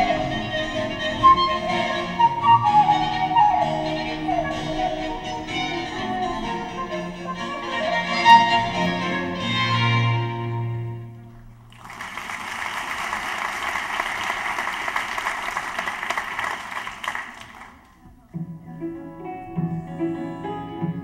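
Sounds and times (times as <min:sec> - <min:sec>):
audience applauding: 0:11.7 - 0:18.0.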